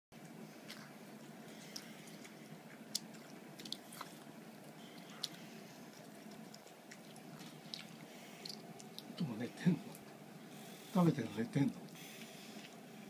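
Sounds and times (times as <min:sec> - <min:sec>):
wet mouth clicks and smacks: 0:02.9 - 0:04.2, 0:07.7 - 0:09.2.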